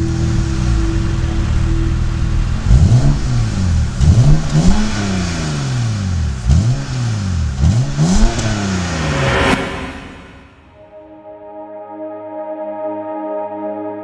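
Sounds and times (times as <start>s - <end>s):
car engine revving: 0.0s - 10.8s.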